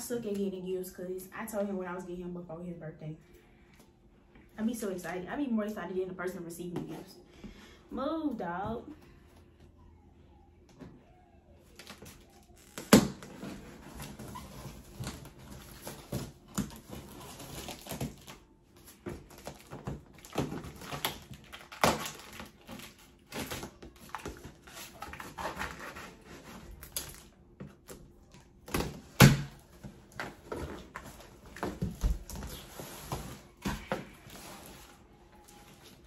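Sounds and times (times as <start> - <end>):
cardboard packaging rustling: 11.7 - 28.0, 28.8 - 36.0.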